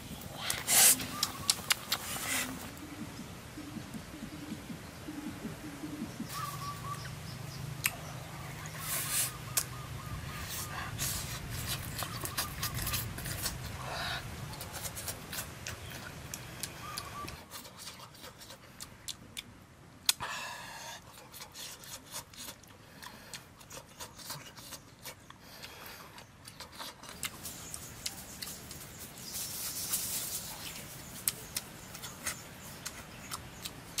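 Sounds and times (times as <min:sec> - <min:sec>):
wet chewing clicks: 0:00.4 - 0:02.7, 0:11.0 - 0:13.8, 0:14.5 - 0:20.2, 0:21.0 - 0:28.9, 0:30.6 - 0:34.0.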